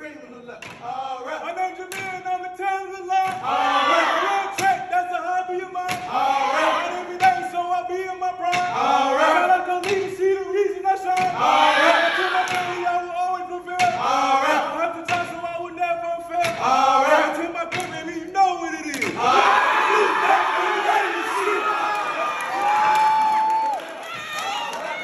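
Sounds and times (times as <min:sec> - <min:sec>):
men chanting in unison: 0:00.7 - 0:02.2, 0:03.2 - 0:22.3
crowd screaming and cheering: 0:19.1 - 0:25.0.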